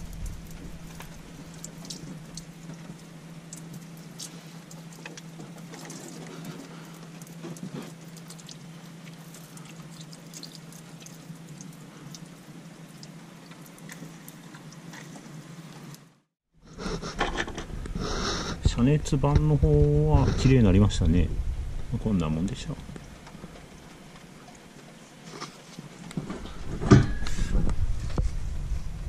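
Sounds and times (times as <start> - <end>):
water spattering on engine: 0.0 - 6.2
water drips and splashes: 0.0 - 16.1
steady low hum: 0.0 - 29.0.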